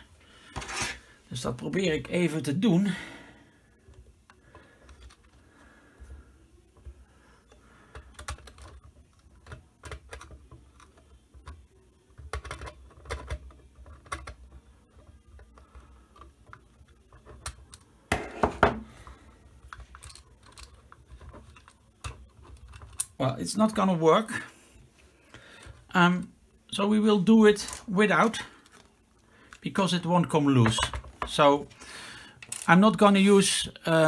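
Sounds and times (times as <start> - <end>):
small clicks and light scraping: 19.6 - 23.2.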